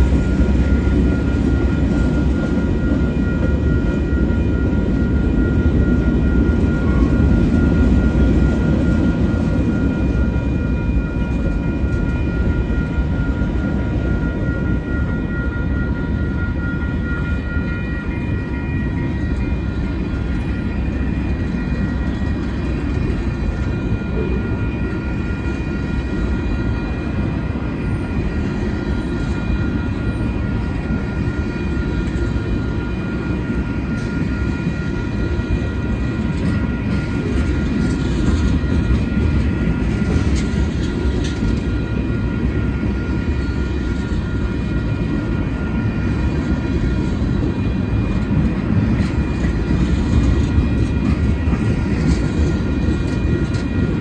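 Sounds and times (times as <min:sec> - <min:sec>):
steel train wheels rumbling on rail: 0:00.0 - 0:54.0.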